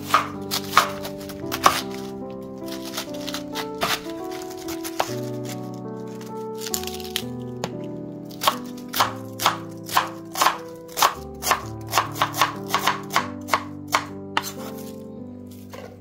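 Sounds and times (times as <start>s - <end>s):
knife shredding cabbage: 0.0s - 7.3s, 8.3s - 16.0s
background music: 0.0s - 16.0s.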